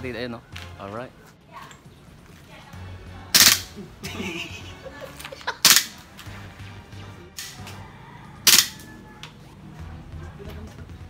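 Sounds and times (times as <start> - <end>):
airsoft pistol shots: 3.4 - 3.7, 5.6 - 6.0, 8.5 - 8.8.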